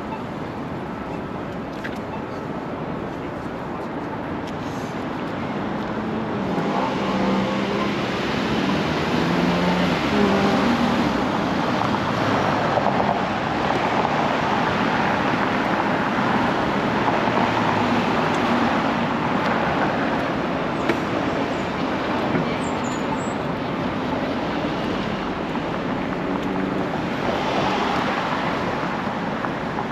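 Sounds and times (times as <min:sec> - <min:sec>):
cars driving past: 0:05.6 - 0:29.9.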